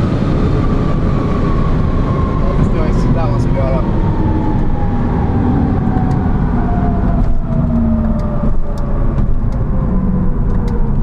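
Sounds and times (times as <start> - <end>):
engine wind and tyre rumble: 0.0 - 11.0.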